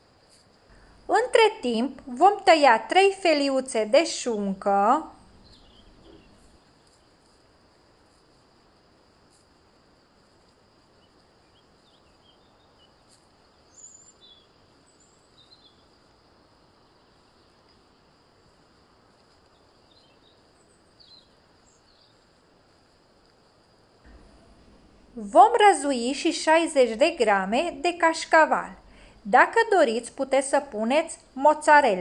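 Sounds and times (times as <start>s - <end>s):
faint high chirps: 5.1s - 7.0s.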